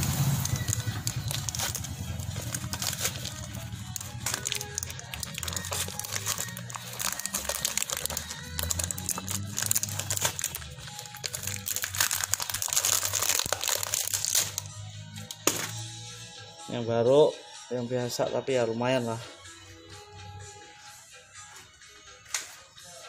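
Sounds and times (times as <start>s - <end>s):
background music: 0.0s - 23.0s
plastic bottle crinkling: 0.3s - 15.7s.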